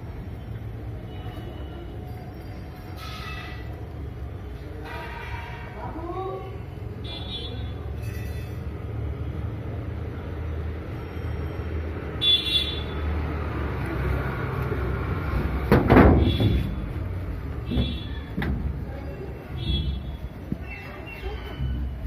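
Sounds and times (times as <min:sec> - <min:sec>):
knocking on metal door: 0:15.6 - 0:16.9, 0:17.6 - 0:18.8.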